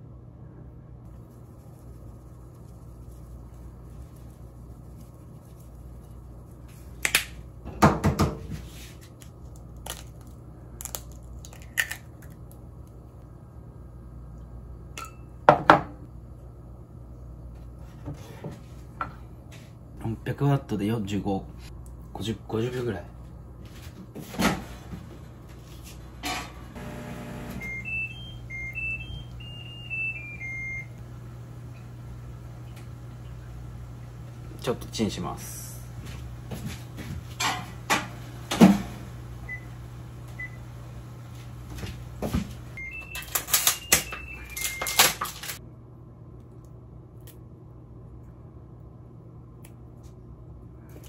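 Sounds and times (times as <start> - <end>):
microwave humming: 21.8 - 46.0
electronic beeping tune: 27.6 - 31.0.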